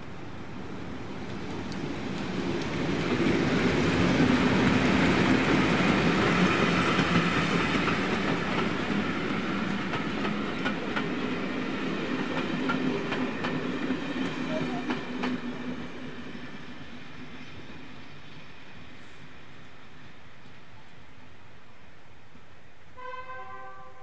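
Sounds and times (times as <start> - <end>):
diesel train engine passing: 0.0 - 23.0
train wheels clicking over joints: 1.2 - 15.9.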